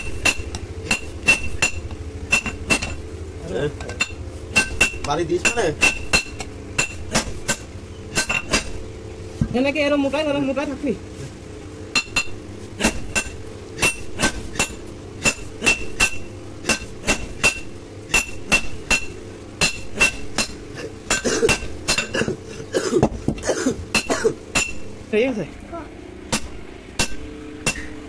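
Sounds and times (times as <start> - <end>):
hammer striking metal on anvil: 0.0 - 3.0, 3.8 - 8.8, 11.9 - 22.2, 23.9 - 24.9, 26.3 - 28.0.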